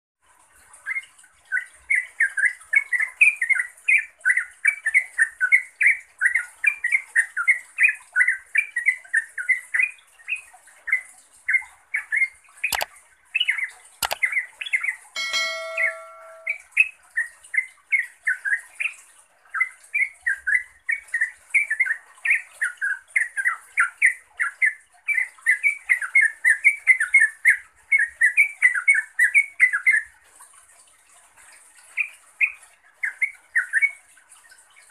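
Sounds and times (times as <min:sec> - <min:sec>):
sharp clicks: 0:14.0 - 0:14.3
brief chime: 0:15.2 - 0:16.6.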